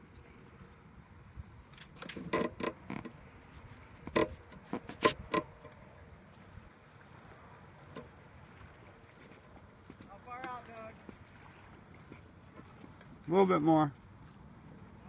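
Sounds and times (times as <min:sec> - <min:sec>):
hollow knocks and thumps: 0:04.1 - 0:05.7.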